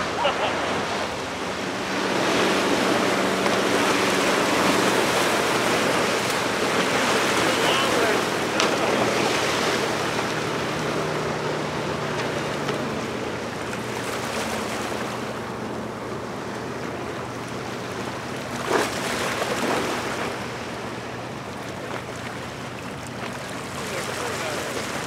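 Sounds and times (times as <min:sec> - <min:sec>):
boat engine hum: 0:00.0 - 0:25.0
water rushing: 0:00.0 - 0:25.0.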